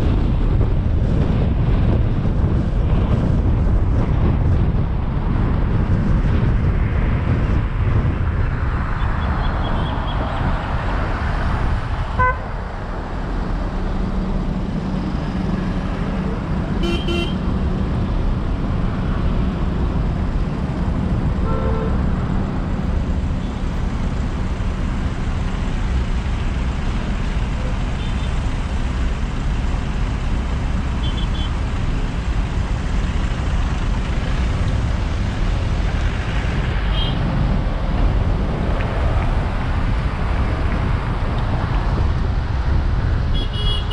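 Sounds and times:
car road and engine rumble: 0:00.0 - 0:43.9
car horn toots: 0:12.2 - 0:12.5, 0:16.8 - 0:17.4, 0:43.3 - 0:43.9.

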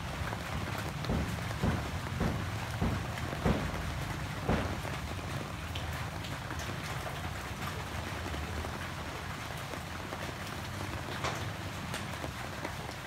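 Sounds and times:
loud raindrops striking: 0:00.0 - 0:13.0
rain falling on leaves: 0:00.0 - 0:13.0.

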